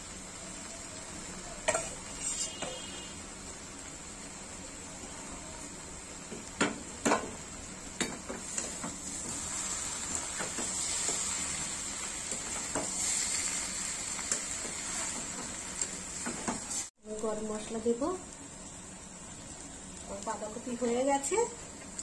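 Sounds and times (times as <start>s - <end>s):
curry sizzling in pan: 0.0s - 22.0s
spatula scraping pan: 1.7s - 3.0s.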